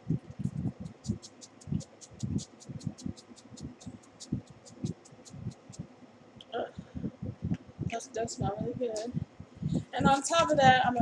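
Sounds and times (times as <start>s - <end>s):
mist spray bottle spritzing: 0.5s - 5.7s.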